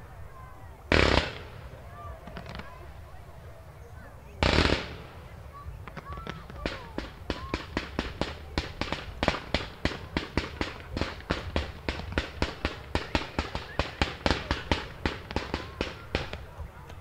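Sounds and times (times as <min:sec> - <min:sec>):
firework launch shots: 0:00.9 - 0:02.9, 0:04.4 - 0:05.2, 0:05.9 - 0:16.6.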